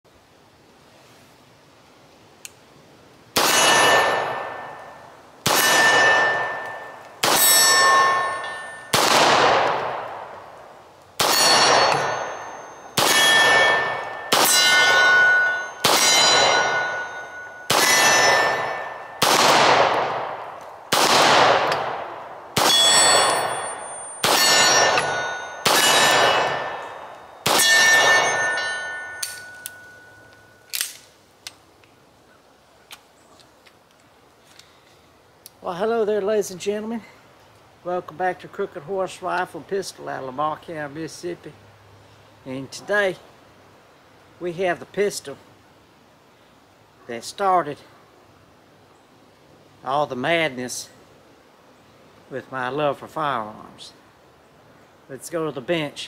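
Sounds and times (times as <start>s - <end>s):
pistol shots: 3.4s - 4.7s, 5.4s - 8.2s, 8.9s - 10.3s, 11.2s - 15.2s, 15.8s - 28.5s
steel target ringing: 3.4s - 9.1s, 11.2s - 19.3s, 22.6s - 30.7s.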